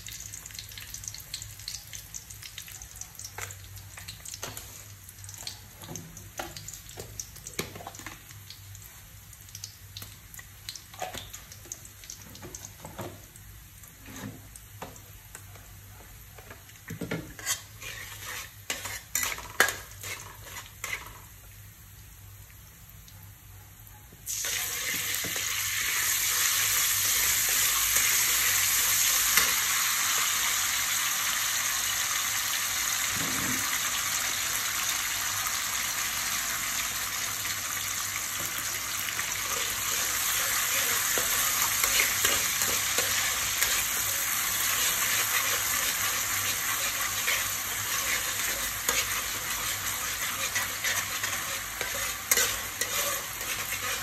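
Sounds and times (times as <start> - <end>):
garlic and sauce sizzling in oil: 0.0 - 23.4, 24.3 - 54.0
metal spatula scraping pan: 17.0 - 21.3, 39.5 - 54.0.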